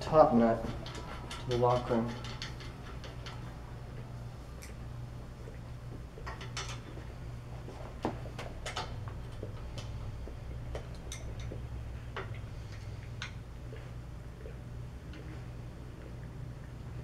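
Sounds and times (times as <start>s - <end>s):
steady low hum: 0.0s - 17.0s
wrenches clicking on metal: 0.3s - 3.6s.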